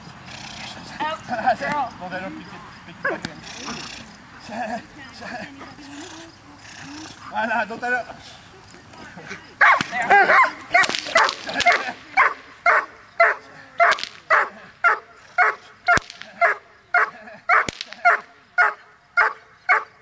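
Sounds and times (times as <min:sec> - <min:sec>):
dog barking: 0:09.6 - 0:10.6, 0:11.2 - 0:19.9
sharp cracks: 0:09.7 - 0:12.1, 0:13.8 - 0:14.4, 0:15.8 - 0:16.5, 0:17.6 - 0:18.3.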